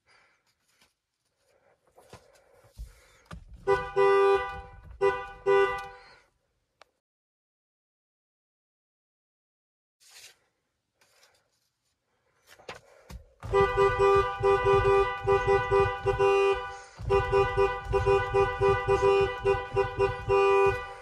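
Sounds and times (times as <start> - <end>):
car horn honking: 3.6 - 6.2, 13.4 - 21.0.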